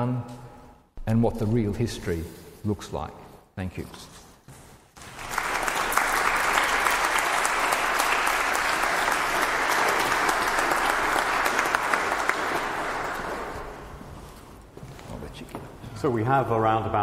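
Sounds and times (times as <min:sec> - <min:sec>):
audience applauding: 0:05.0 - 0:14.1.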